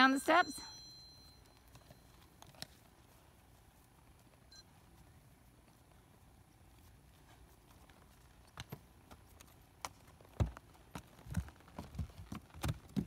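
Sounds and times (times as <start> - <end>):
horse hooves clopping on steps: 6.7 - 13.0.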